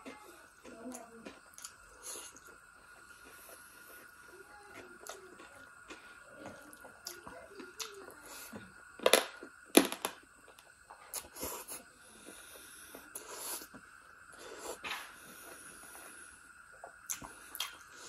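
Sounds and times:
wet chewing and smacking: 0.0s - 8.0s, 16.7s - 17.8s
loud sharp wet mouth sounds: 17.1s - 17.8s.

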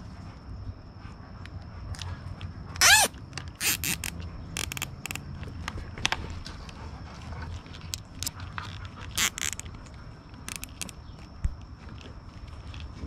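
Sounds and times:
zip tie ratcheting: 2.8s - 5.2s, 8.2s - 9.7s, 10.4s - 11.3s
small plastic clicks: 2.8s - 6.2s, 7.6s - 12.1s.

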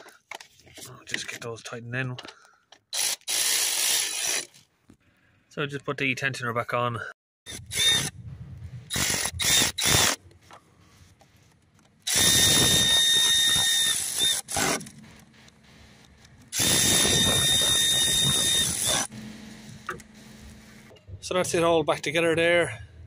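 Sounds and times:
power driver whining: 8.9s - 10.4s, 12.0s - 21.3s.

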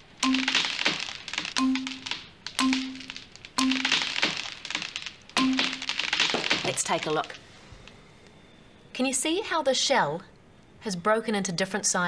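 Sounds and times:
egg shell cracking: 0.2s - 6.8s.

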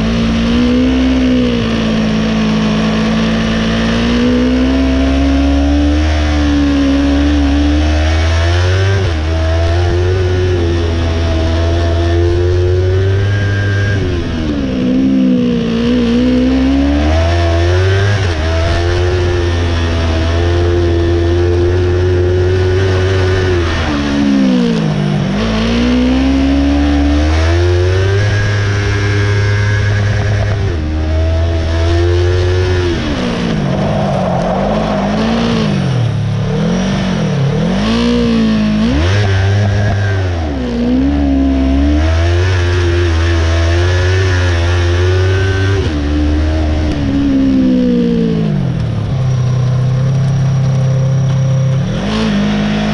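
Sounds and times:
race car engine revving: 0.0s - 52.9s
steady low rumble: 29.7s - 37.8s.

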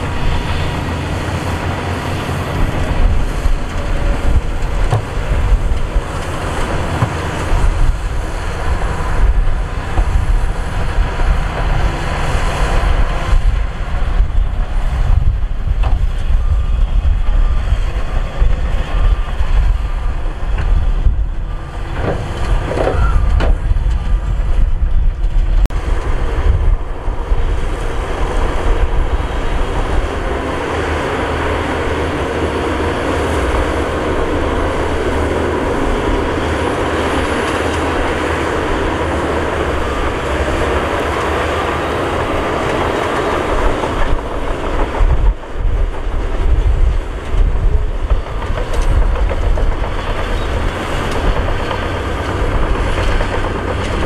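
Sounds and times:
heavy diesel machinery rumbling: 0.0s - 54.0s
clanks and rattles: 39.6s - 54.0s.

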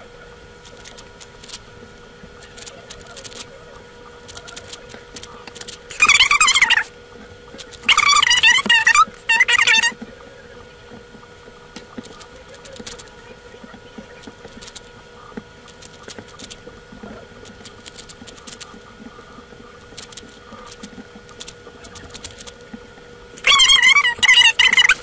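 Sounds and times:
speed cube plastic clicking: 14.5s - 14.8s, 15.7s - 16.6s, 17.4s - 18.8s, 19.9s - 22.6s.

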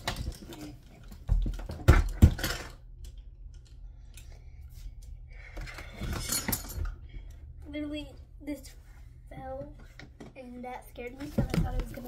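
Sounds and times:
object falling with thud and knocks: 1.2s - 2.8s.

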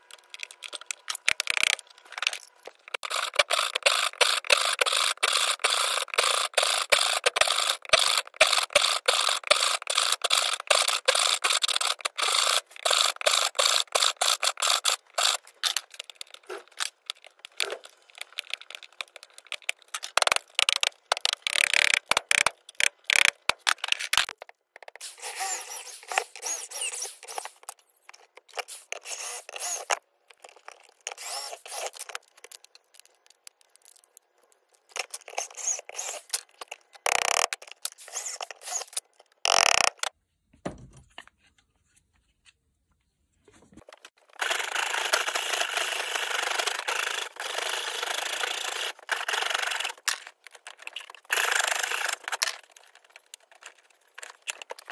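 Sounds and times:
scraping and cutting wood: 0.0s - 40.2s, 43.7s - 54.9s
drill boring into wood: 3.0s - 15.8s, 25.0s - 27.6s, 28.6s - 30.0s, 31.0s - 32.2s, 35.0s - 36.4s, 37.0s - 40.1s, 44.4s - 50.1s, 51.3s - 52.4s.

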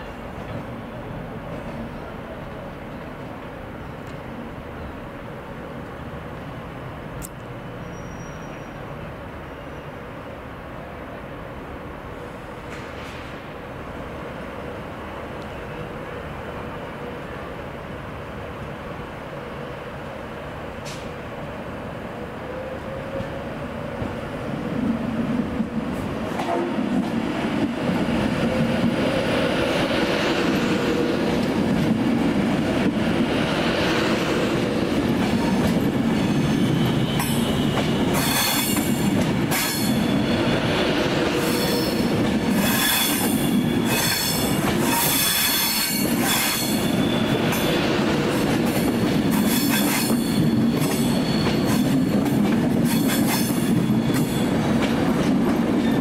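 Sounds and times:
train rumbling: 0.0s - 56.0s
faint high wheel squeal: 7.7s - 10.0s, 36.1s - 38.9s, 39.5s - 40.8s, 41.4s - 47.9s, 49.4s - 52.3s, 52.9s - 54.6s.

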